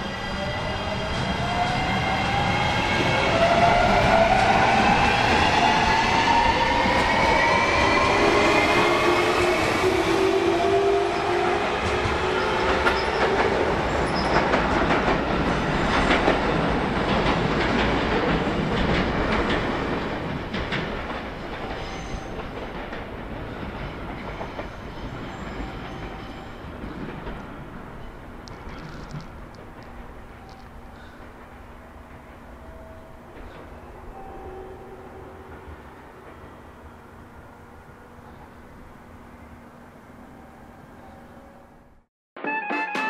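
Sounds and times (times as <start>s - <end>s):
wheels clacking over rail joints: 11.8s - 32.6s.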